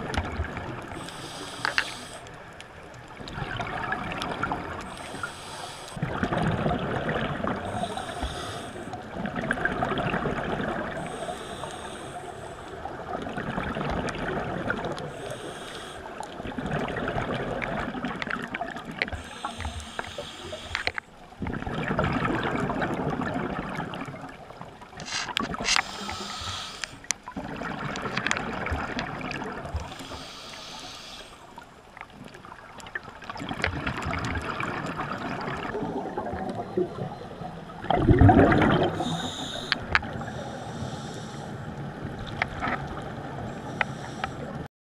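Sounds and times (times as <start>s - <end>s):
regulator inhalation hiss: 1.0s - 2.3s, 4.9s - 6.0s, 7.7s - 8.9s, 11.0s - 12.7s, 15.2s - 16.1s, 19.2s - 21.0s, 25.0s - 27.1s, 29.9s - 31.4s, 39.0s - 41.5s
exhaled bubbles rushing: 3.2s - 5.2s, 6.0s - 7.9s, 9.0s - 11.2s, 12.9s - 15.1s, 16.4s - 19.3s, 21.4s - 26.3s, 27.3s - 30.0s, 32.2s - 39.2s.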